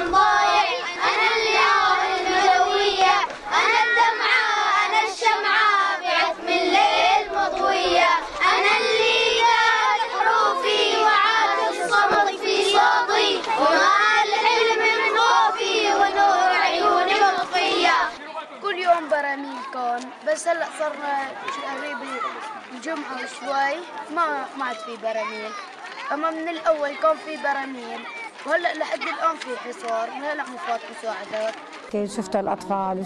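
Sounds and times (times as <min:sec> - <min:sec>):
boys singing together: 0:00.0 - 0:18.2.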